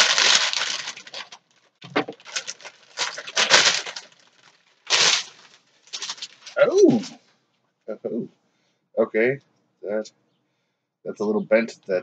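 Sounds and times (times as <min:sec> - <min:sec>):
plastic bag rustling: 0:00.0 - 0:07.2.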